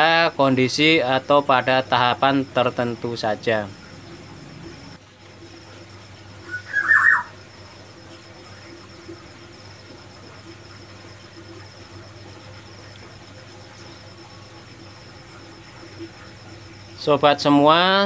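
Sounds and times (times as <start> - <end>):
bird call notes: 6.5 - 7.4.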